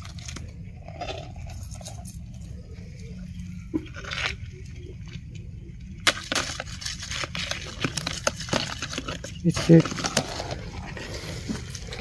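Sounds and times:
steady low rumble: 0:00.0 - 0:12.0
dry leaves rustling: 0:06.0 - 0:12.0.

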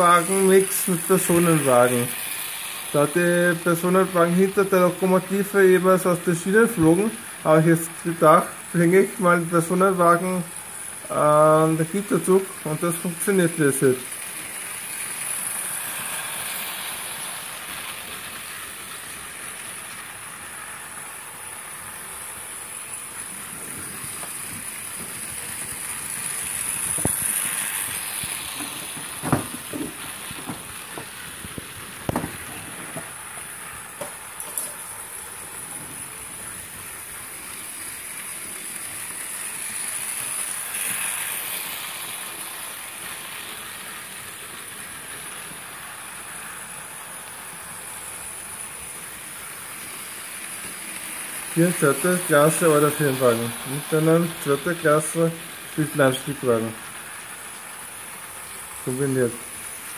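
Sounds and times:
model train wheels rolling: 0:00.0 - 0:09.0, 0:11.8 - 0:46.3, 0:47.0 - 0:56.0
high whine: 0:23.3 - 0:34.8
sharp clicks and knocks: 0:28.5 - 0:33.2.

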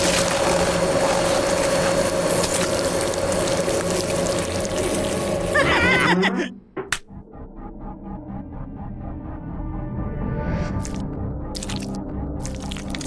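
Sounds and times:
wet squelching meat: 0:00.0 - 0:05.5, 0:11.6 - 0:13.0
meat grinder humming: 0:00.0 - 0:06.0.

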